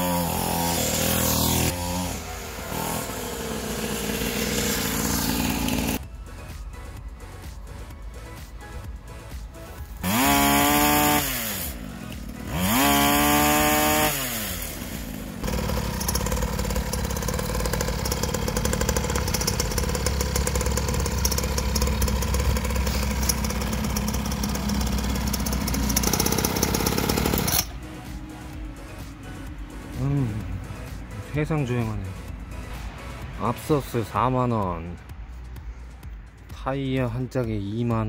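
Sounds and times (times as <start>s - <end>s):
two-stroke engine revving: 0.0s - 6.0s, 9.8s - 28.2s.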